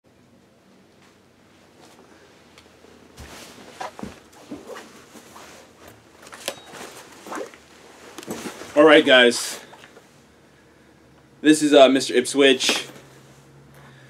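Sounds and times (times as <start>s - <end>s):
rustling of person moving: 0.3s - 10.4s.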